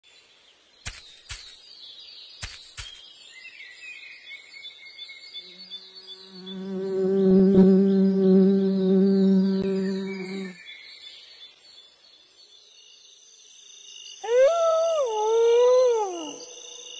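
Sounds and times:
sharp cartoon clicks: 0:00.8 - 0:01.6, 0:02.4 - 0:03.0
flying insect buzzing: 0:05.5 - 0:10.6.

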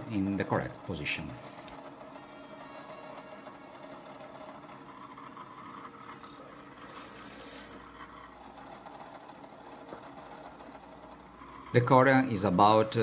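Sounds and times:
drill press boring: 0:00.0 - 0:13.0
hiss: 0:06.8 - 0:07.8.

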